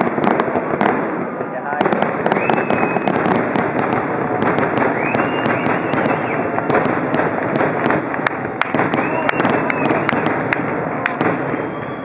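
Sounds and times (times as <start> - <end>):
fireworks bangs and crackling: 0.0 - 12.0
firework whistles: 2.0 - 3.7, 4.5 - 8.0, 8.7 - 10.5, 11.2 - 12.0.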